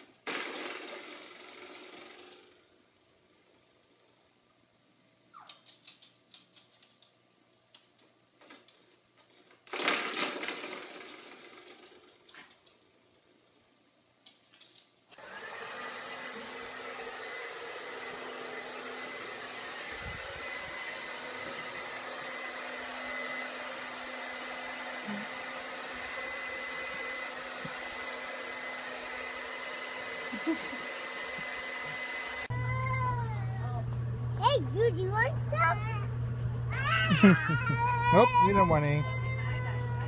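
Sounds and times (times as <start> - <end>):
hair dryer blowing: 15.1 - 34.6, 36.7 - 40.0.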